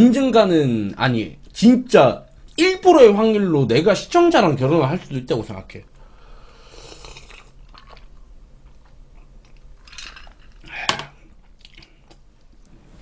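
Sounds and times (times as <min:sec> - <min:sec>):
person sipping and swallowing: 0:06.7 - 0:12.2.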